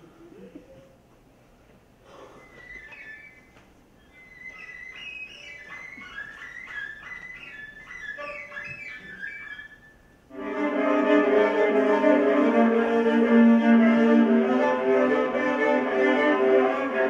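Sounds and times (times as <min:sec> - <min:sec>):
soft high melody: 0:05.2 - 0:17.0
violin bowed notes: 0:10.3 - 0:17.0.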